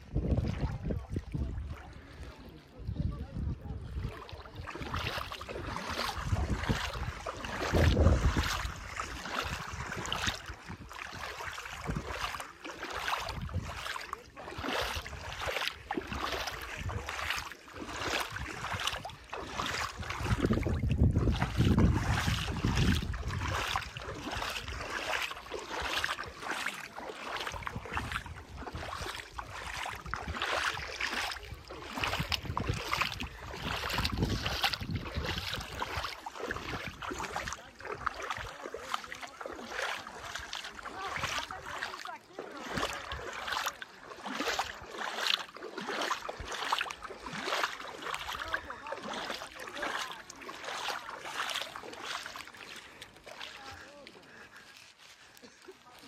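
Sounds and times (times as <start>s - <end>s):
wind buffeting microphone: 0.0s - 2.0s, 2.8s - 12.4s, 13.0s - 13.9s, 14.6s - 25.2s, 27.4s - 38.5s
footsteps walking: 47.5s - 56.0s.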